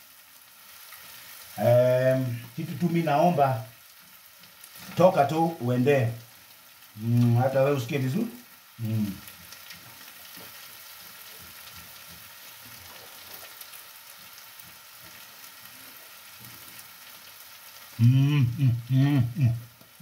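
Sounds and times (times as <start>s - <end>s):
food sizzling in frying pans: 0.0s - 20.0s
man humming mmm: 8.8s - 9.2s, 18.0s - 19.8s.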